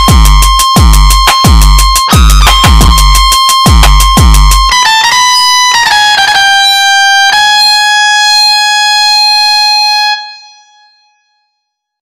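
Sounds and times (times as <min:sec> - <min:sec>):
synth notes: 0:00.0 - 0:07.6.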